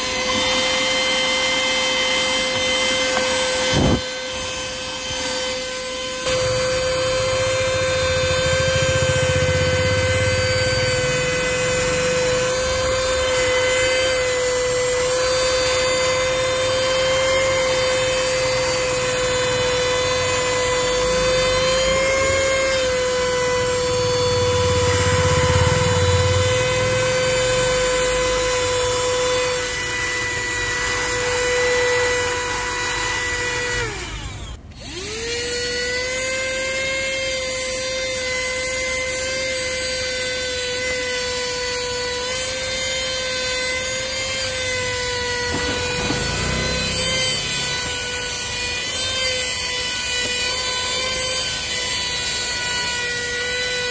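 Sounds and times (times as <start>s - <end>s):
vacuum cleaner motor whine: 0.0s - 53.9s.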